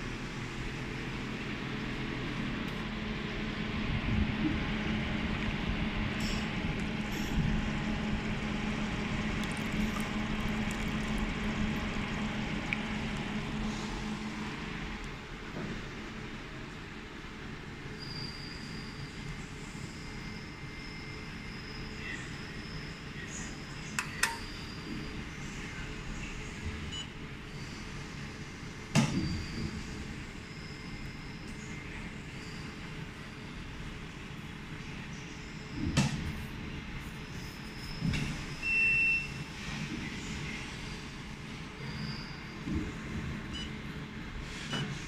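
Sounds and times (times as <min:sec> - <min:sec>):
machine hum: 0:00.0 - 0:16.7
pump and fans humming: 0:00.0 - 0:18.1, 0:18.7 - 0:45.0
water running into plastic bucket: 0:09.2 - 0:13.2.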